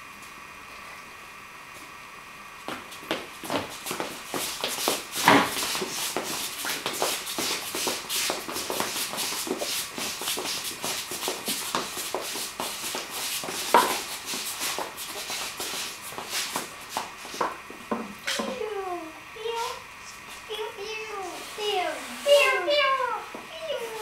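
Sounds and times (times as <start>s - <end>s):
shoes shuffling on hard floor: 2.6s - 18.6s.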